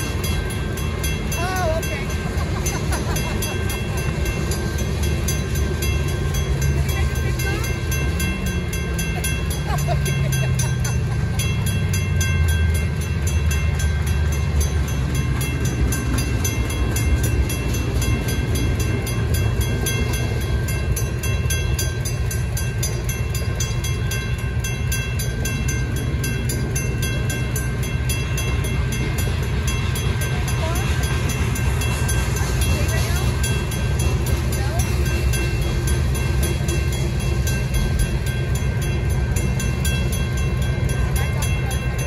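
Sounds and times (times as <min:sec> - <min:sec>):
crossing bell ringing: 0:00.0 - 0:42.0
train wheels rumbling on rail: 0:00.0 - 0:42.0.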